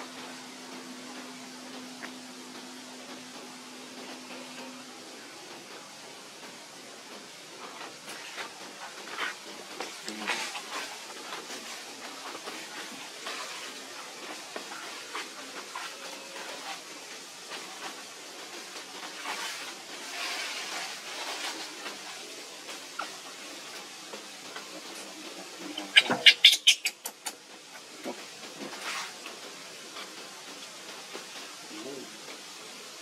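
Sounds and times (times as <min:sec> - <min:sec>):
steady background hiss: 0:00.0 - 0:33.0
macaques playing: 0:24.6 - 0:29.4
monkey harsh shrieks: 0:25.8 - 0:27.0.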